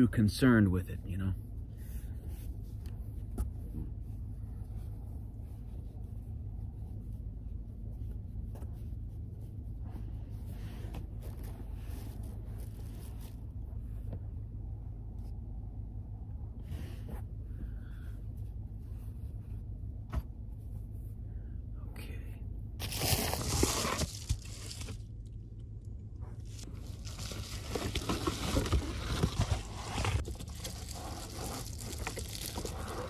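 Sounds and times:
low rumble: 9.0s - 33.0s
fabric rustling: 26.3s - 33.0s.

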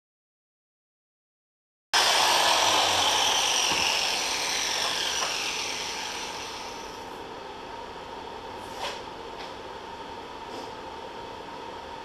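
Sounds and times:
angle grinder spinning down: 2.0s - 7.0s.

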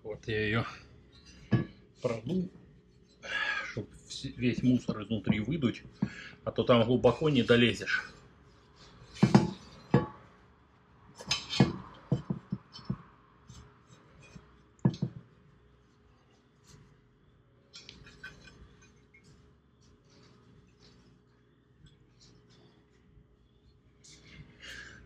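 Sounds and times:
hard parts clinking and knocking: 1.2s - 1.8s, 9.1s - 10.3s, 11.2s - 15.3s.

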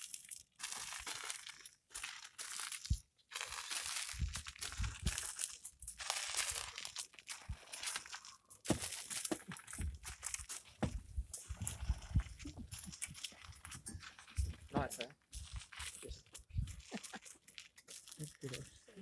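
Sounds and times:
elephant crunching dry twigs: 0.0s - 19.0s
dull thuds: 10.8s - 12.8s.

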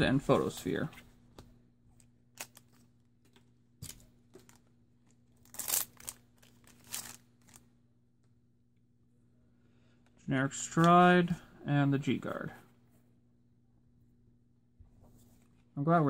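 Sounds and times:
foil wrapper crinkling as torn open: 5.4s - 7.6s.

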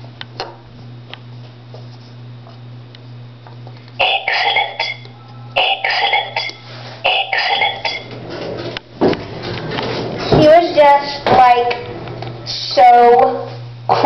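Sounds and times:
steady low hum: 0.0s - 14.0s
person coughing: 4.0s - 5.0s, 5.6s - 8.1s.

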